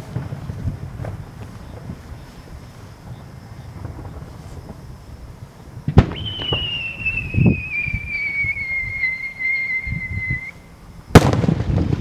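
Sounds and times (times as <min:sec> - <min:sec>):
firework whistle sliding down: 0:06.0 - 0:10.7.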